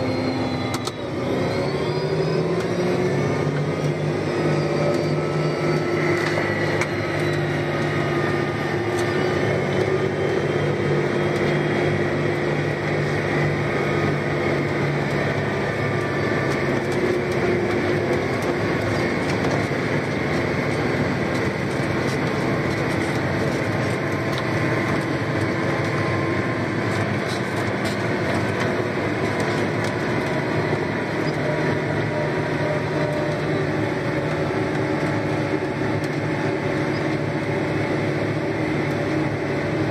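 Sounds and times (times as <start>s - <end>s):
faint drivetrain whine: 0.0s - 39.9s
tractor diesel engine hum: 0.0s - 39.9s.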